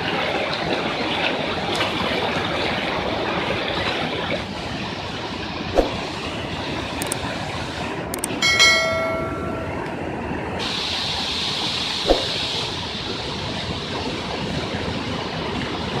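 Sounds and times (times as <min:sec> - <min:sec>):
rushing floodwater and storm: 0:00.0 - 0:16.0
sharp clicks: 0:08.2 - 0:08.4
bell-like ding: 0:08.4 - 0:10.1.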